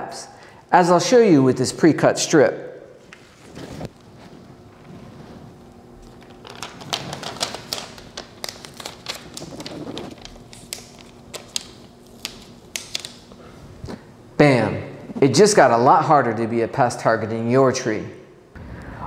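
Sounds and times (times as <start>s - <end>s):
paper backing peeling crackle: 5.7s - 13.4s.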